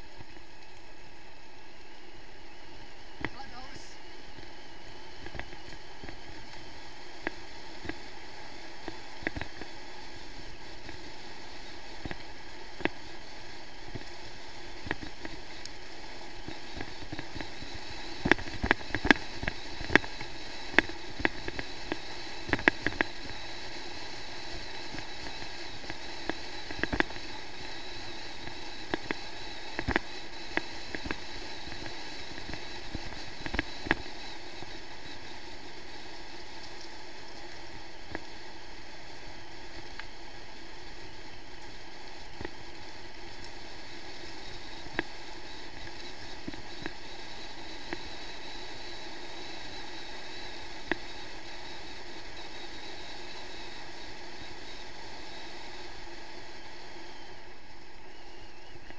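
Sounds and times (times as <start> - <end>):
bike rolling on gravel: 4.4 - 48.7.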